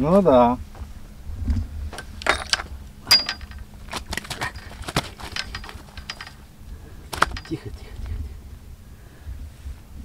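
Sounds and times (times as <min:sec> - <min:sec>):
sharp clicks and light clinks: 0:02.0 - 0:06.4, 0:07.1 - 0:07.8.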